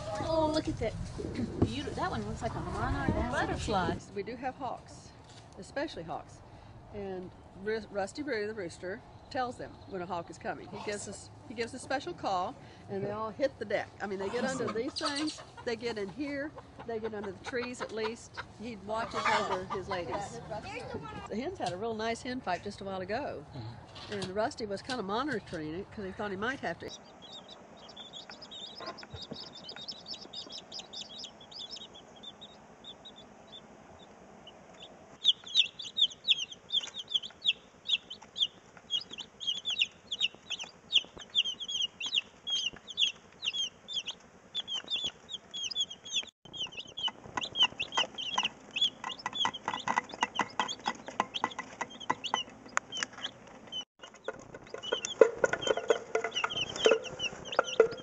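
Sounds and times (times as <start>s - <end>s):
chicks peeping: 14.1s - 21.3s, 26.2s - 58.0s.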